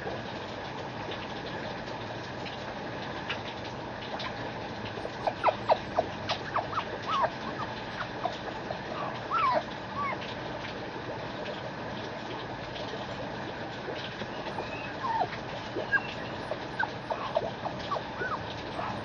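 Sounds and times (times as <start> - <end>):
steady background hum: 0.0 - 19.0
puppy whimpering yips: 5.0 - 10.3, 14.2 - 19.0.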